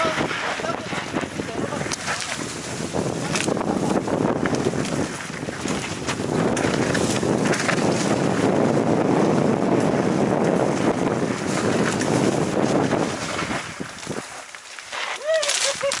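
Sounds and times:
wind rushing over microphone: 0:00.0 - 0:14.5
tyre noise on dirt: 0:02.0 - 0:16.0
bike clicks and rattles: 0:03.1 - 0:08.3, 0:14.0 - 0:16.0.

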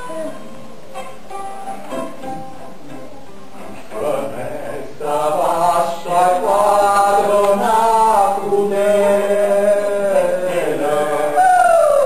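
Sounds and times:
person singing slow melody: 0:03.6 - 0:12.0.

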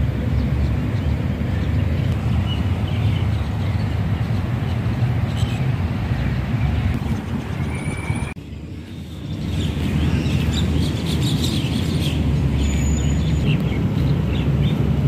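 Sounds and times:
low outdoor rumble: 0:00.0 - 0:11.1.

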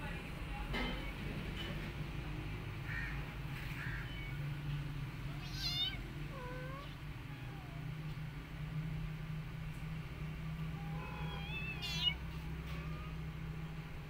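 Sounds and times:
cat meowing: 0:03.7 - 0:04.4, 0:05.3 - 0:08.0, 0:10.7 - 0:13.3.

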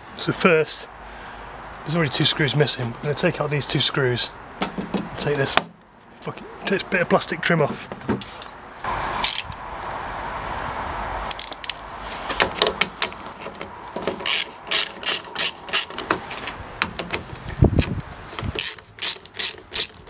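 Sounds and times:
steady rushing noise: 0:08.6 - 0:14.2
ratcheting screwdriver clicking: 0:14.2 - 0:17.2, 0:17.8 - 0:20.0.

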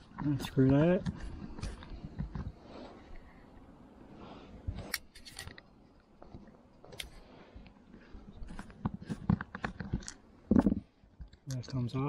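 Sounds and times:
screwdriver clicks and scrapes: 0:04.9 - 0:05.6.

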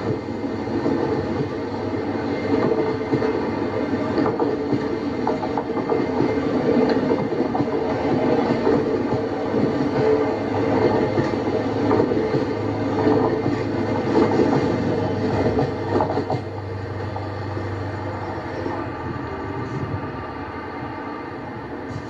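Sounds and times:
steady train rumble: 0:00.0 - 0:22.0
train wheels clattering over rail joints: 0:02.4 - 0:17.3.

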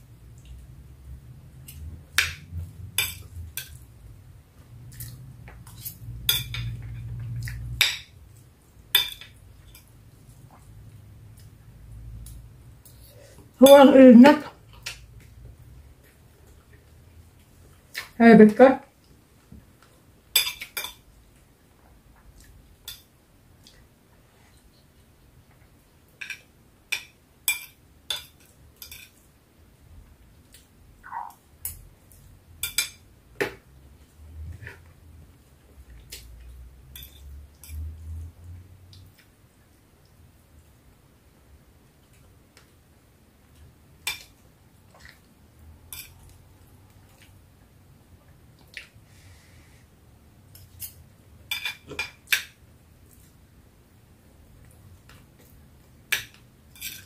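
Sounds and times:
cutlery clinking on a plate: 0:05.8 - 0:07.1, 0:09.0 - 0:09.9, 0:20.4 - 0:21.0, 0:26.2 - 0:29.2, 0:32.6 - 0:33.0, 0:37.0 - 0:37.8, 0:45.9 - 0:46.2, 0:50.6 - 0:52.6, 0:56.2 - 0:57.0.

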